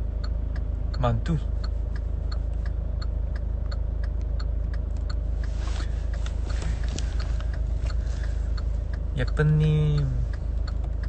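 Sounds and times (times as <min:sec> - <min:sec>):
car cabin rumble: 0:00.0 - 0:11.0
turn signal ticking: 0:00.0 - 0:11.0.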